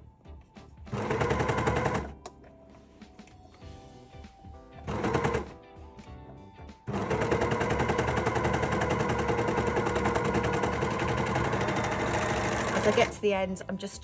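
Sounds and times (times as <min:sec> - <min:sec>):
quiet background music: 0:00.0 - 0:14.0
overlocker stitching: 0:00.9 - 0:02.2, 0:04.9 - 0:05.4, 0:06.9 - 0:13.2.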